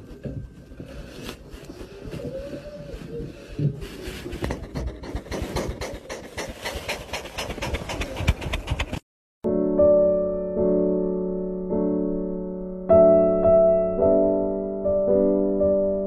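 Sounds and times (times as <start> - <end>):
fur rubbing against microphone: 0.9 - 9.0.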